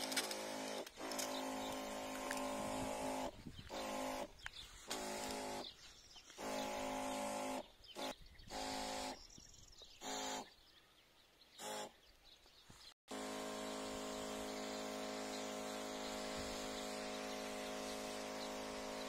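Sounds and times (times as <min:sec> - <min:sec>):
sprayer pump humming: 0:00.0 - 0:09.2, 0:13.1 - 0:19.0
fine spray hissing: 0:13.8 - 0:19.0.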